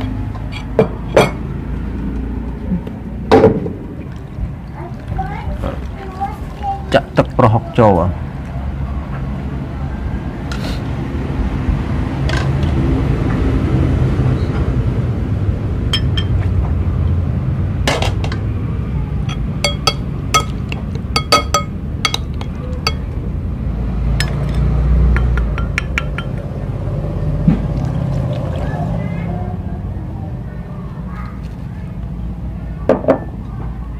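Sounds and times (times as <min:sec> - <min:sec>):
metal spoon clinking on bowl: 0:15.9 - 0:16.4, 0:19.3 - 0:23.2, 0:24.2 - 0:26.5.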